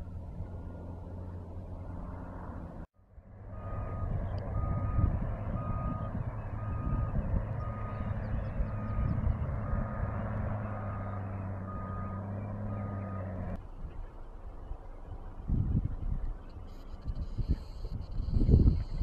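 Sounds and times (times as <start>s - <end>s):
truck engine running: 0.0s - 14.0s
truck reversing alarm beeping: 3.5s - 13.6s, 16.6s - 19.0s.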